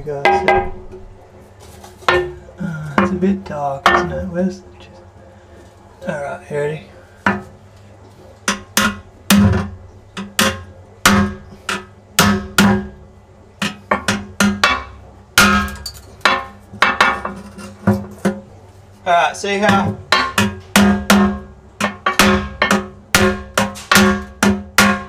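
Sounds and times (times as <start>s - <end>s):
hammer striking chisel on glass: 8.5s - 13.0s, 13.6s - 17.4s, 19.7s - 25.0s.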